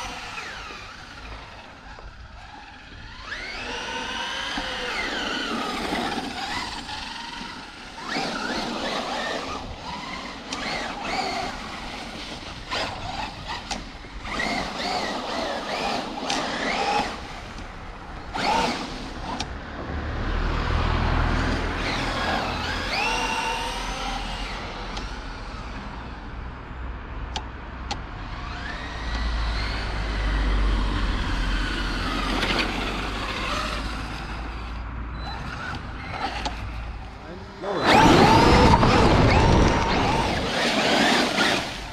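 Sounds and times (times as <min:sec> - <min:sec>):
rc truck motor whine: 0:00.0 - 0:19.5, 0:21.3 - 0:26.3, 0:27.9 - 0:41.9
low rumble: 0:38.2 - 0:40.7.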